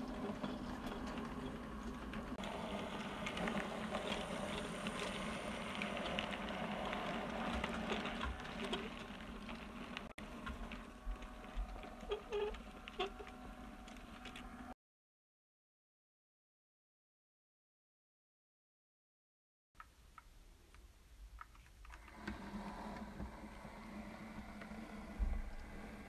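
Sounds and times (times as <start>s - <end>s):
model train wagons rolling: 0.0s - 14.7s, 21.4s - 26.0s
wheels clicking over rail joints: 0.0s - 14.7s
steady low hum: 0.0s - 14.8s.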